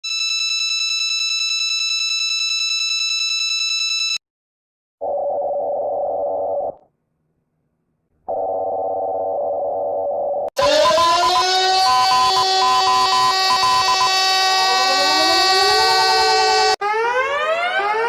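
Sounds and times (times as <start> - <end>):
high buzzy alarm tone: 10.6 - 18.0
low buzzy alarm tone: 10.6 - 18.0.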